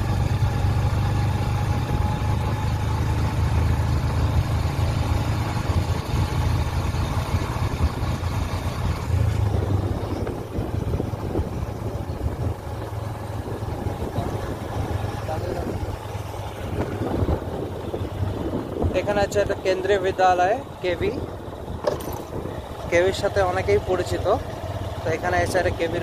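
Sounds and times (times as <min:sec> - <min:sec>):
motorcycle engine hum: 0:00.0 - 0:26.0
wind rumbling on microphone: 0:05.4 - 0:23.6.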